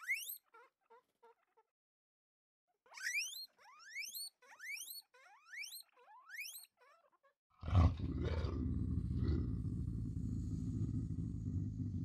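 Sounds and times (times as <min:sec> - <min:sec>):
guinea pigs wheeking: 0:00.0 - 0:01.7, 0:02.7 - 0:08.0.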